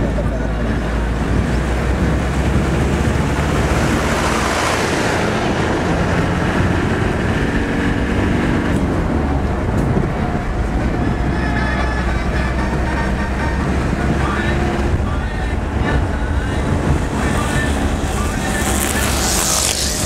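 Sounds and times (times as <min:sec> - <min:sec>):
vehicle engine and tyre noise: 0:00.0 - 0:20.0
wind rushing past window: 0:13.6 - 0:20.0.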